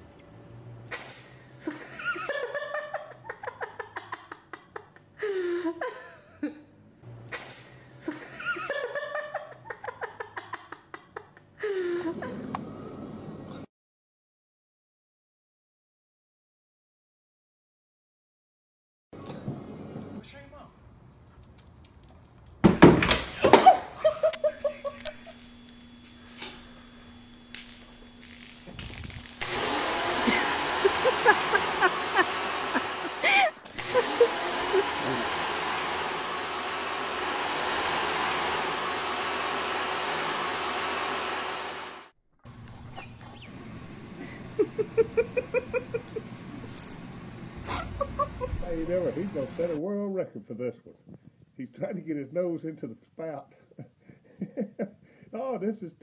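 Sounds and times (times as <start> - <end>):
person laughing loudly: 0.9 - 6.6, 7.3 - 12.4, 23.4 - 25.4, 30.2 - 35.4, 44.2 - 46.4, 47.6 - 49.0
faint steady hum: 24.1 - 49.8.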